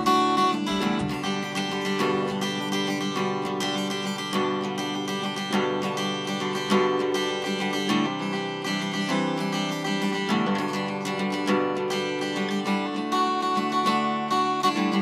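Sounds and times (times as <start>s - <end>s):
acoustic guitar strumming chords: 0.0s - 15.0s.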